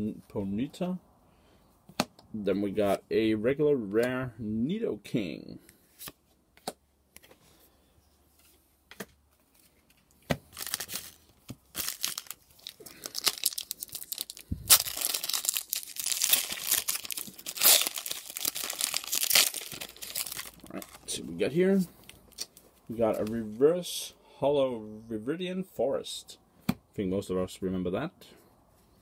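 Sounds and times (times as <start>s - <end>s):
foil ripping and crackling: 10.5s - 21.0s
foil wrapper crinkling: 10.5s - 21.1s.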